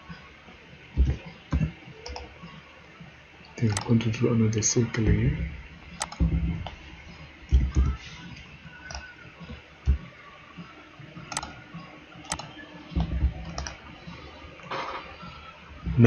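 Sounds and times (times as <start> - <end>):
dull low thumps: 1.0 - 1.7, 5.0 - 6.8, 7.4 - 8.0, 13.0 - 13.6
computer mouse clicks: 1.0 - 2.3, 6.0 - 8.0, 8.9 - 9.1, 11.3 - 11.6, 12.2 - 13.8.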